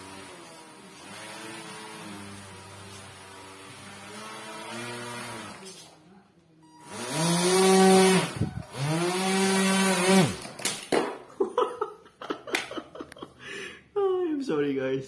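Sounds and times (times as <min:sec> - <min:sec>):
electric motor whining: 0:00.0 - 0:05.9, 0:06.8 - 0:10.5.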